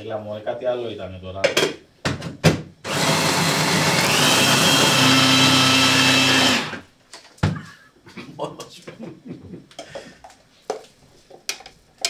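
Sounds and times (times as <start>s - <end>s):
electric food chopper whining: 2.8s - 6.9s.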